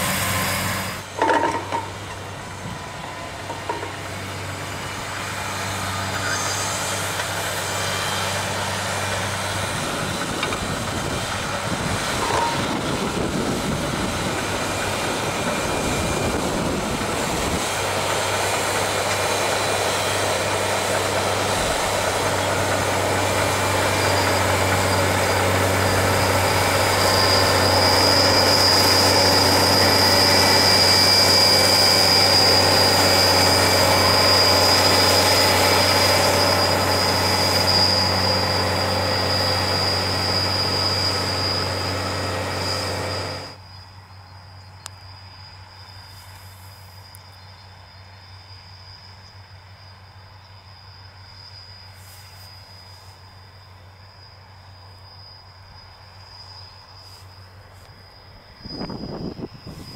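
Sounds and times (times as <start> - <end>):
tractor running under load: 0.0 - 43.7
high steady whine: 0.0 - 59.9.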